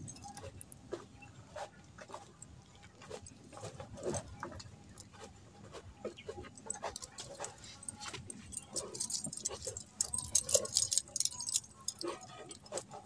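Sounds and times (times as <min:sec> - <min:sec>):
bangles clinking and jingling: 0:00.0 - 0:00.7, 0:06.6 - 0:13.0.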